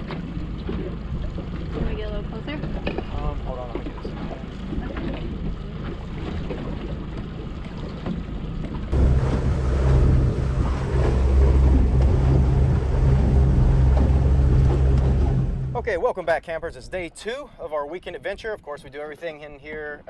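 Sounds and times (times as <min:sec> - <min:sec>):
outboard motor drone: 0:00.0 - 0:16.0
water rushing past hull: 0:00.0 - 0:17.1
wind buffeting microphone: 0:00.0 - 0:17.1.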